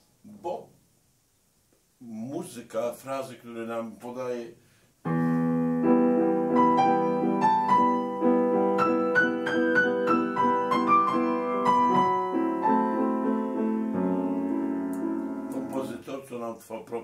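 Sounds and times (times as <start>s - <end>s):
acoustic piano playing: 5.1s - 16.0s.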